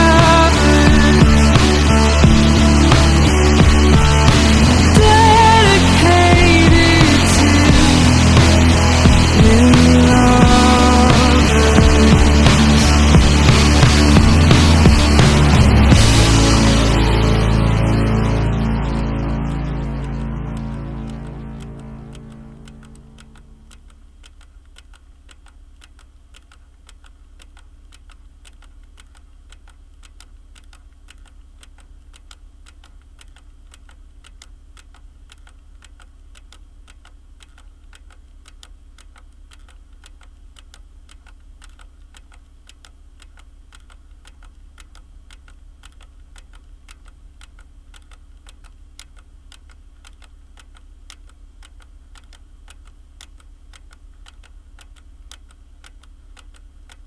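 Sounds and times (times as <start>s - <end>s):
steady low hum: 0.0s - 57.0s
keyboard typing clicks: 16.9s - 57.0s.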